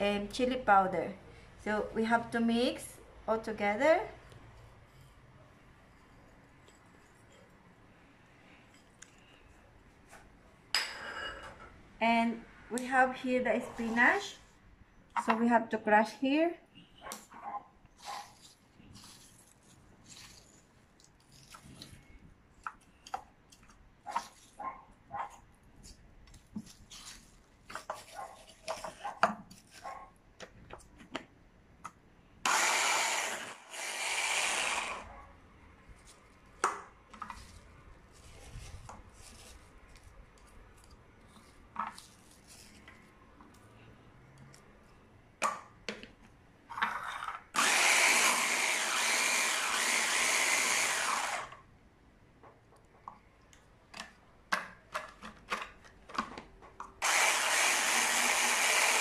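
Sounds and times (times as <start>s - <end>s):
hand blender chopping: 32.5s - 35.0s, 47.6s - 51.6s, 57.0s - 59.0s.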